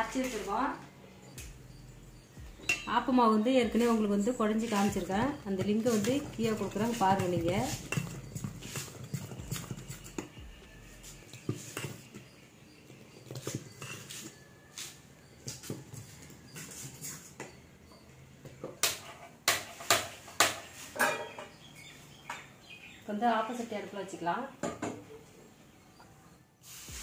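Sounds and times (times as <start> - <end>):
metal spoon scraping a pot: 2.6 - 14.4.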